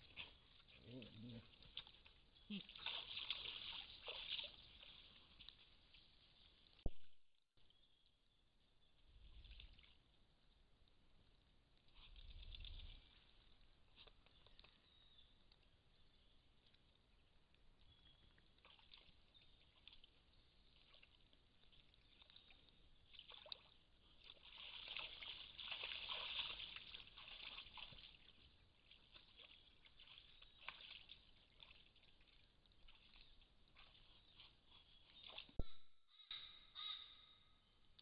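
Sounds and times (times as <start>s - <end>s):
deer splashing in mud: 0.0s - 6.8s, 18.5s - 35.6s.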